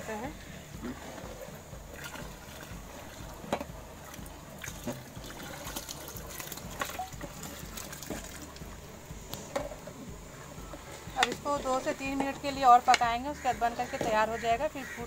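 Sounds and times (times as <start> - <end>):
liquid pouring into pot: 4.1 - 8.7.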